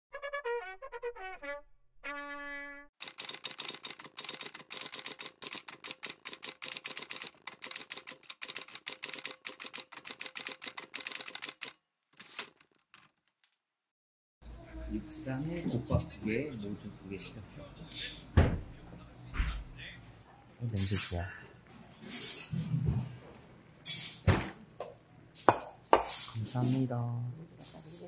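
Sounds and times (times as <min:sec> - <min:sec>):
typewriter key clacks: 0:03.0 - 0:13.2
typewriter bell ring: 0:10.3 - 0:12.4.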